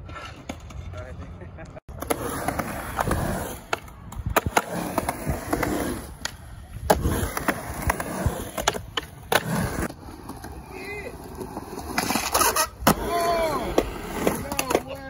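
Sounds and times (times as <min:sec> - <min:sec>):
skateboard wheels rolling on concrete: 0:00.0 - 0:15.0
skateboard clacking against concrete: 0:03.6 - 0:08.0, 0:12.0 - 0:15.0.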